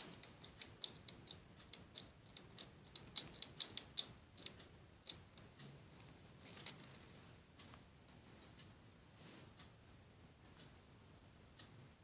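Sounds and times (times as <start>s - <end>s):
plastic toy figure clicking: 0.0s - 5.5s.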